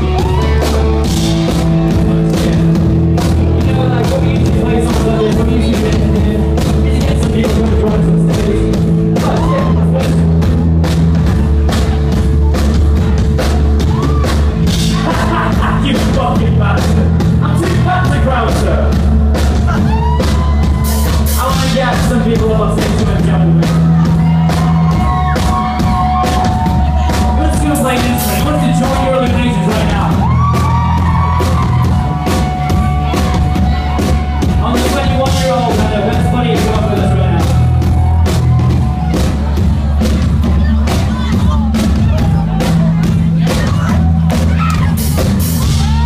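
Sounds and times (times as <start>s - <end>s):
bass guitar: 0.0s - 46.0s
drums driving beat: 0.0s - 46.0s
crowd shouting along: 23.7s - 34.8s, 36.7s - 46.0s.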